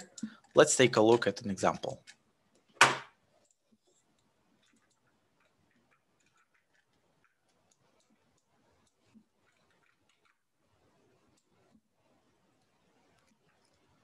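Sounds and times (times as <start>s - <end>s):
faint ticks and clicks: 3.4s - 11.9s.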